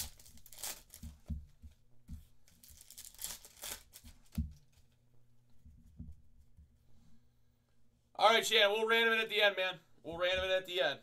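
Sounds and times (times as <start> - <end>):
foil wrapper tearing and crinkling: 0.0 - 1.2, 2.5 - 4.4.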